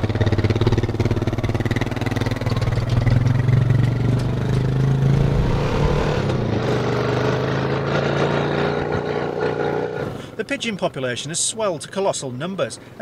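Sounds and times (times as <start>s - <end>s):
quad bike engine running: 0.0s - 5.4s, 6.4s - 10.3s.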